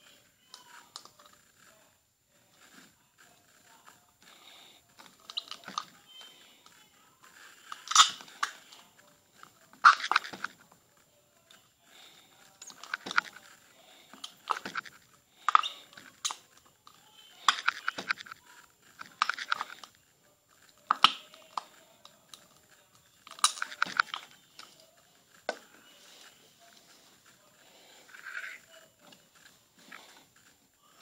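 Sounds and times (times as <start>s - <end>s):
slime squishing with sticky pops: 12.0s - 13.6s.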